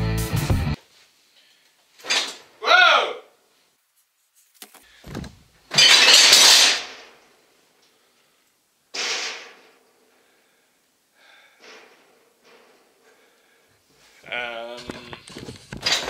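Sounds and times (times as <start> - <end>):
thump: 5.0 - 5.4
metal rattle: 5.0 - 7.2, 15.7 - 16.0.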